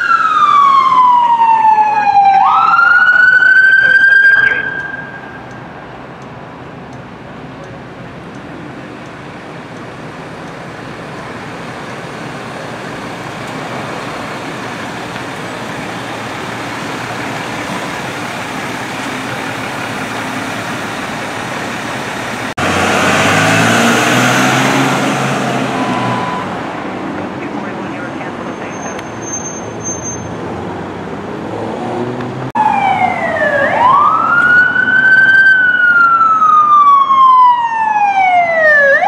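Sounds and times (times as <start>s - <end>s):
ambulance engine running: 0.0s - 30.2s, 32.5s - 39.0s
street traffic noise: 0.0s - 39.0s
vehicle passing close by: 22.3s - 28.1s, 30.3s - 35.2s.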